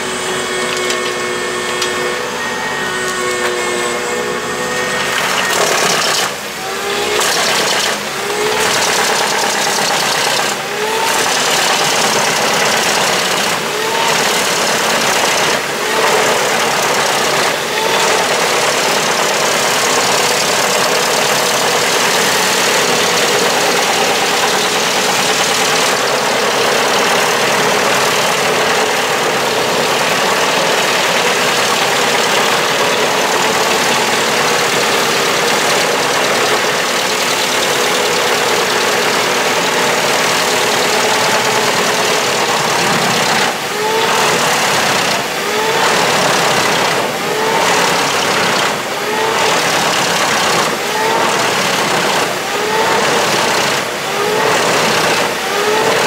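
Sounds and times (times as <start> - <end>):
short rising whine: 0.0 - 9.5
wood chipper grinding logs: 0.0 - 56.0.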